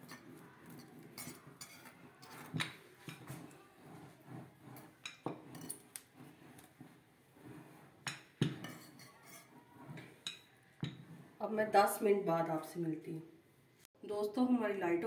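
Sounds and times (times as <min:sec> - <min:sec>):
utensil knocking and scraping: 0:00.0 - 0:11.4.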